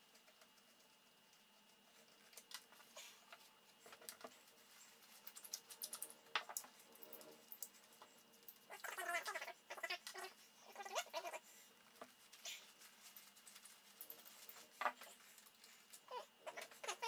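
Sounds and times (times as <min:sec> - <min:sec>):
paper towel rustling: 0:11.5 - 0:16.0.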